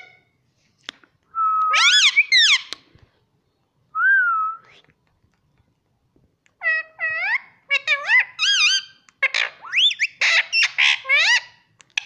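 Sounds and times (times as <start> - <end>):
parakeet whistling: 7.3 - 11.5.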